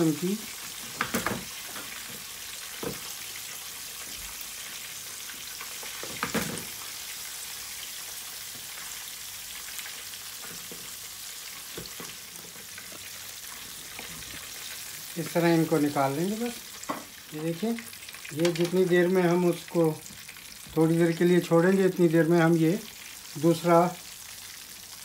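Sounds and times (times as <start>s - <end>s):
chicken sizzling in hot oil: 0.0s - 25.0s.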